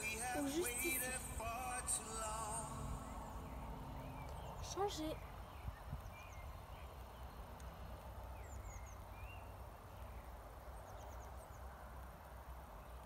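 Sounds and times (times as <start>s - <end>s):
low rumble: 0.0s - 4.8s
background hiss: 0.0s - 13.0s
faint birds chirping: 0.0s - 13.0s.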